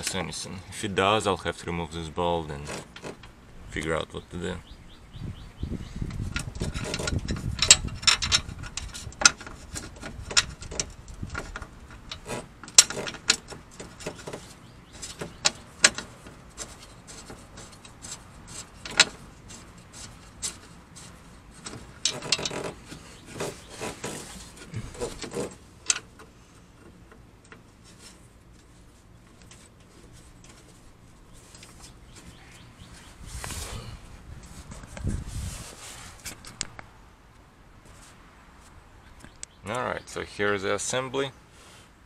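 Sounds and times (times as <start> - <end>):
metal bolts clicking and clinking: 6.3 - 19.6.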